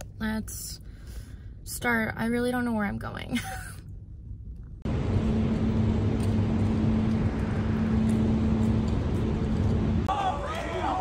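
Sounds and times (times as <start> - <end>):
parking garage hum: 0.0 - 11.0
steady low tone: 3.7 - 10.1.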